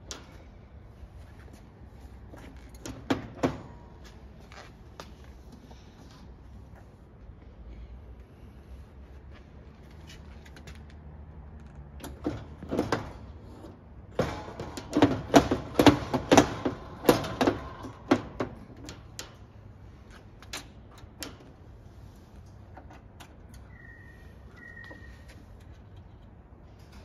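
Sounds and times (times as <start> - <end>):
metal clicks and clunks: 2.4 - 4.2.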